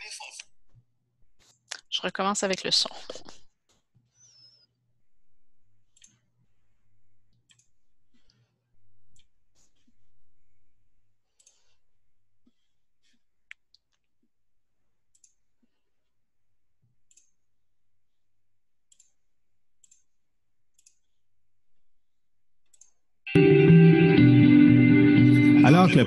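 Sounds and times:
faint computer mouse clicks: 15.1 - 15.4.

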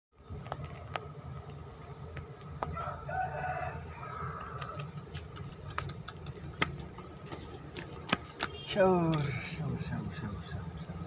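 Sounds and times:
rooster crowing: 2.7 - 4.9.

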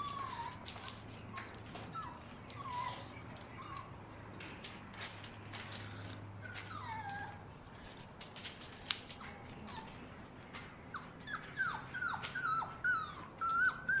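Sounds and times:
puppies whimpering: 0.0 - 4.2, 6.3 - 7.9, 10.8 - 14.0.

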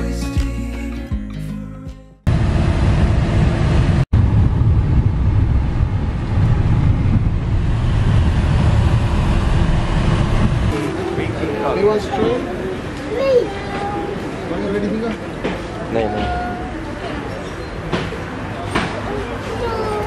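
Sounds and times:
wind noise: 2.3 - 11.4
van road rumble: 2.3 - 14.5.

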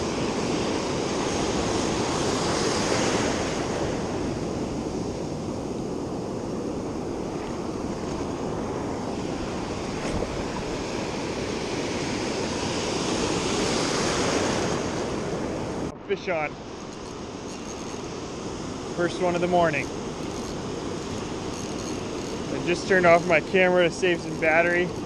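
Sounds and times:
ocean waves washing up beach: 0.0 - 25.0.

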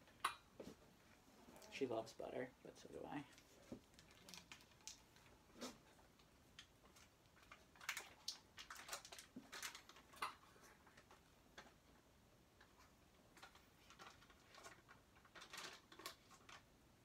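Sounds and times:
paper wrapper crinkling: 3.3 - 5.3, 6.6 - 10.2, 13.4 - 16.7.

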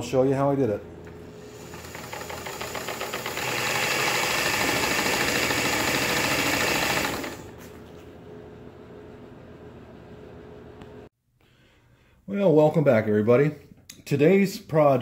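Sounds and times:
sewing machine motor running: 1.3 - 7.6.

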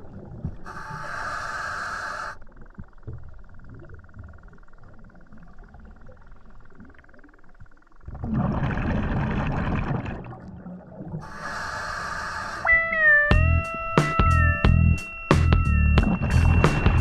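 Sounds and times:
exhaled bubbles rushing underwater: 0.0 - 0.8, 8.0 - 11.8, 15.9 - 17.0
hissing regulator breath: 0.7 - 2.4, 11.2 - 12.7
background music: 13.3 - 17.0.

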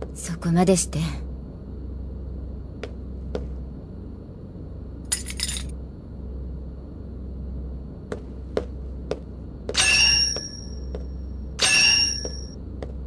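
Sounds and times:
low steady hum: 0.0 - 13.0
metal rings clinking: 5.1 - 5.7.

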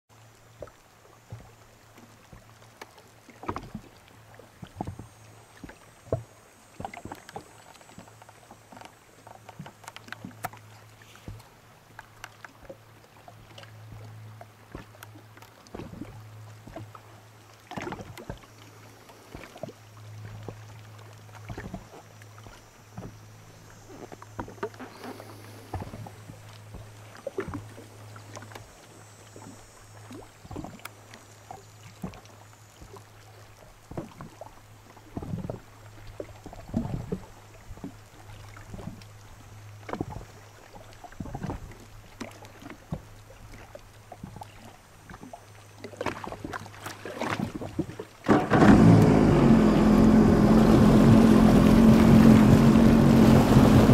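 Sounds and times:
water slapping boat hull: 0.1 - 53.9
steady low hum: 48.3 - 53.9.

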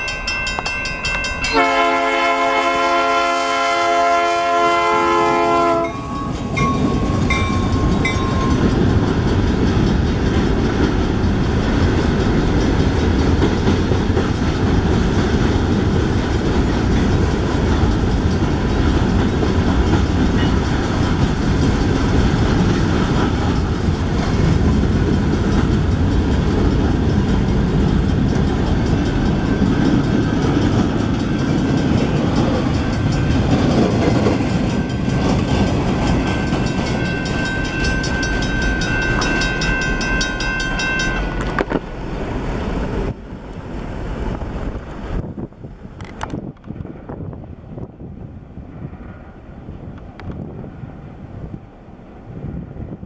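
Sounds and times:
train wheels rumbling on rail: 0.0 - 53.0
thin high steady tones: 5.8 - 10.2, 23.4 - 41.6
wheels clattering over rail joints: 5.8 - 43.1.

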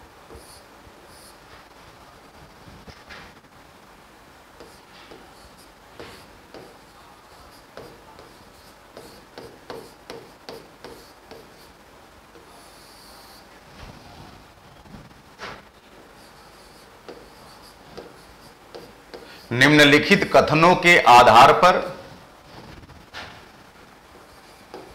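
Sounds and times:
chalk scratching on blackboard: 0.4 - 1.4, 4.6 - 11.8, 12.4 - 13.5, 16.1 - 19.5, 24.2 - 24.9.

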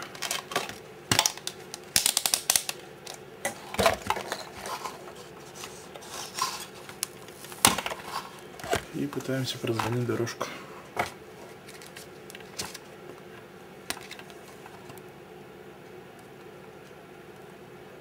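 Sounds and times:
plastic parts and tools clacking: 0.0 - 7.0.

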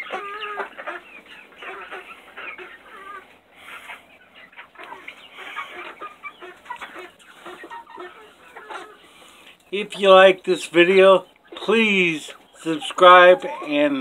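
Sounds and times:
chickens clucking and cheeping: 0.0 - 14.0.

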